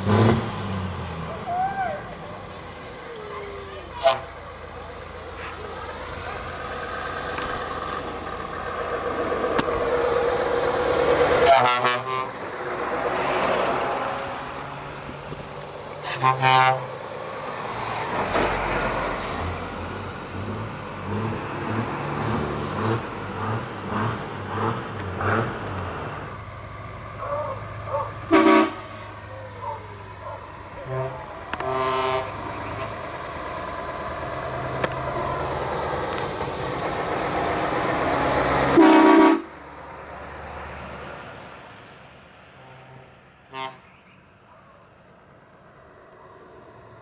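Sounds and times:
trucks driving past: 0.0 - 47.0
air horn blasts: 11.4 - 12.4, 16.0 - 16.9, 28.3 - 29.0, 30.8 - 32.4, 38.7 - 39.5, 42.6 - 43.9.

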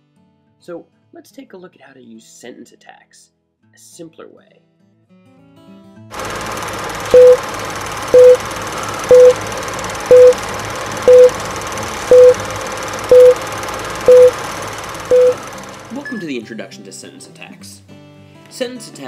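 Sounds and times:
countdown beeps: 7.1 - 7.4, 8.1 - 9.4, 10.1 - 12.5, 13.1 - 13.4, 14.0 - 14.4, 15.1 - 16.2
clicks: 8.1 - 15.7.

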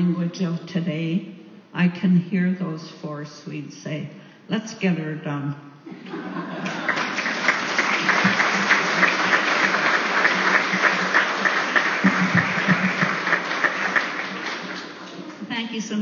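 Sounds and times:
audience applauding: 6.6 - 15.4.

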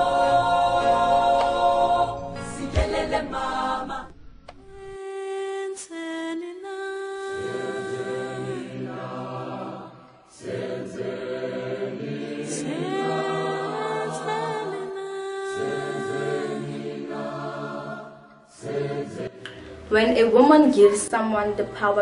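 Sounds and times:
choir singing a cappella: 0.0 - 22.0.

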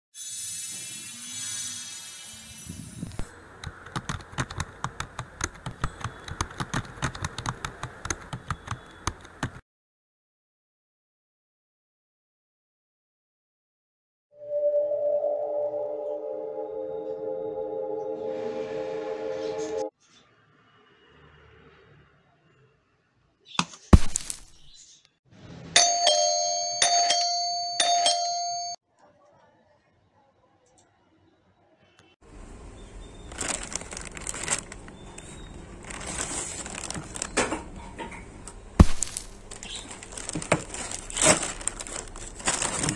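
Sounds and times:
keyboard keystroke clicks: 3.6 - 9.6
metallic bell strikes ringing: 25.8 - 28.8.

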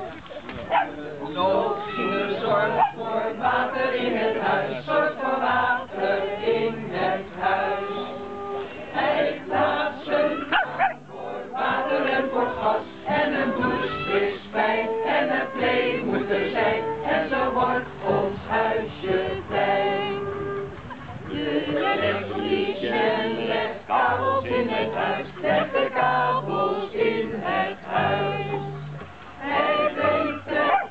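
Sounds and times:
acoustic guitar: 0.0 - 30.9
group of people singing: 0.6 - 30.9
small dog barking: 0.7 - 0.9, 2.8 - 3.0, 10.4 - 11.0, 30.7 - 30.9.

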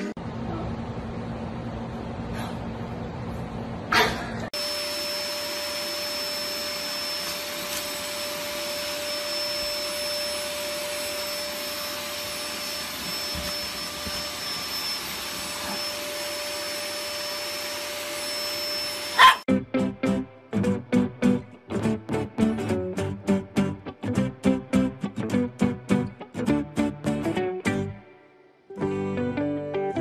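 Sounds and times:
vacuum cleaner running: 0.0 - 19.5.

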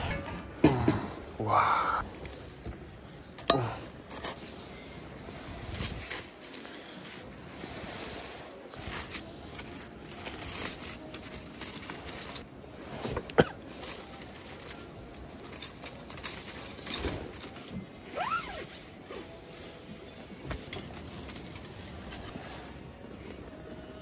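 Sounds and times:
aluminium foil crinkling: 2.0 - 4.8, 8.8 - 12.5, 13.6 - 18.6.

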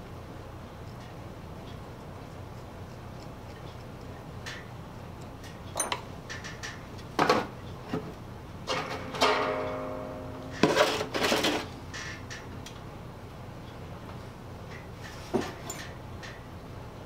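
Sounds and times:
metal tools clinking on wood: 5.7 - 6.1, 15.6 - 16.0
ringing metal clink: 5.8 - 6.0.

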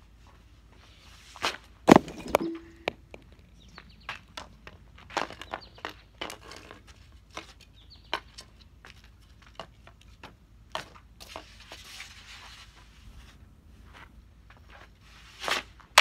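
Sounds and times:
hockey stick knocking puck: 1.9 - 3.4
hockey stick scraping: 5.1 - 7.6, 10.8 - 13.4, 14.7 - 16.0.

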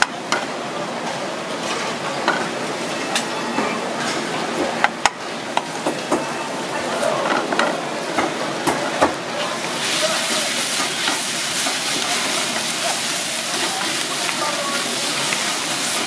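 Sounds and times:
food sizzling in oil: 5.4 - 16.0.

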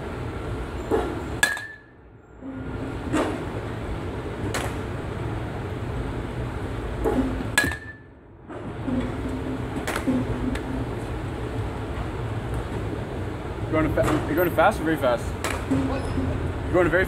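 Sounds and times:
steady low hum: 0.0 - 17.0
metal bat pinging ball: 1.0 - 2.0, 7.1 - 8.1.

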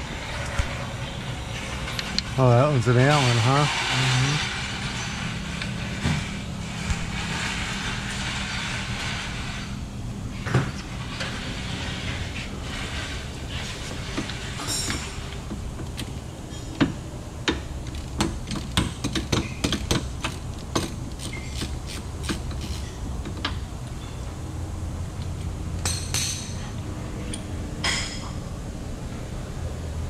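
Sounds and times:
low steady hum: 0.0 - 30.0
wrench scraping: 17.9 - 23.1.

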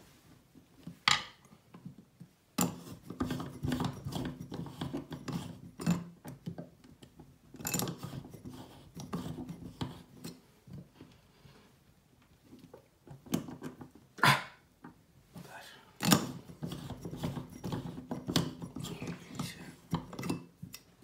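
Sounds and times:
metal scraping and clicking on metal: 2.6 - 6.5, 7.5 - 10.4, 16.0 - 21.0.

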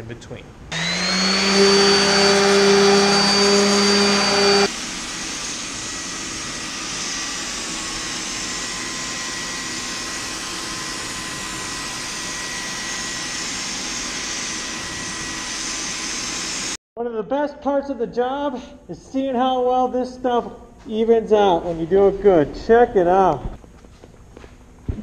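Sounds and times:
orbital sander whining: 0.7 - 16.8.

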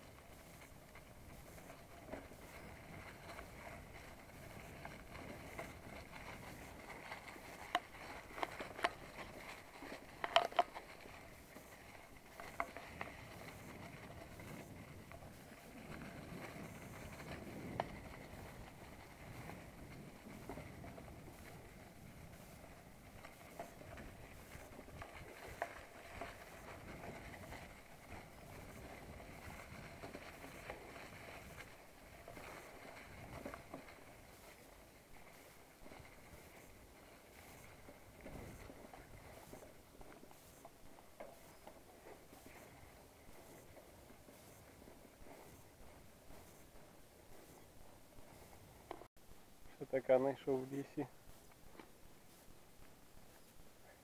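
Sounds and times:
wheels rolling over dry leaves: 0.0 - 54.0.

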